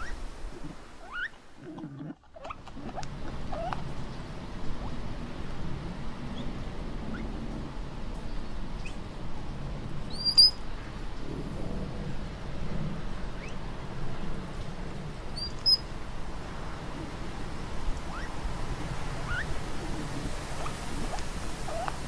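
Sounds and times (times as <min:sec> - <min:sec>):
steady background hiss: 0:00.0 - 0:22.0
sharp high-pitched chirp: 0:10.1 - 0:10.6, 0:15.4 - 0:15.8.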